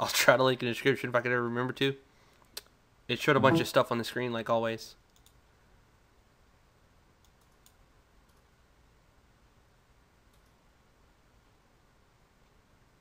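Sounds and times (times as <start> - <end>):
faint room hiss: 0.0 - 13.0
soft clicks: 5.1 - 5.4, 10.3 - 10.6.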